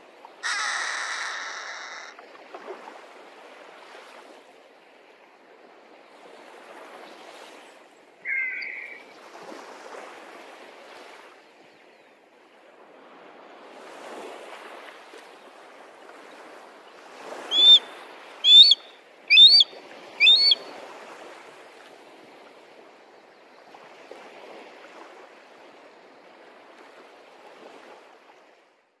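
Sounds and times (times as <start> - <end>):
sea surf washing: 0.0 - 2.2, 6.2 - 11.2, 15.8 - 22.8
high sharp bird calls: 0.4 - 2.2, 8.3 - 9.1, 17.5 - 20.6.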